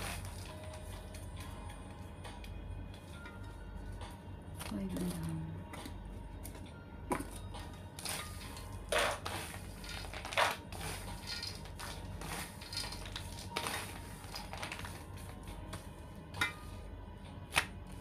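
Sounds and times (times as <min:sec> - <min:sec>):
plastic crinkling and rustling: 0:09.0 - 0:15.5.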